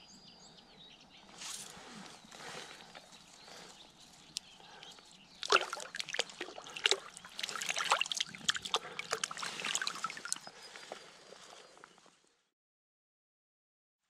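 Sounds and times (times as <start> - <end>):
river water splashing and trickling: 4.4 - 11.5.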